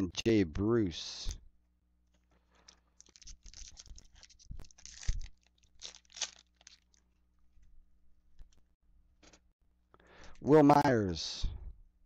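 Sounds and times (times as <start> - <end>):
foil wrapper tearing and crinkling: 2.5 - 7.1.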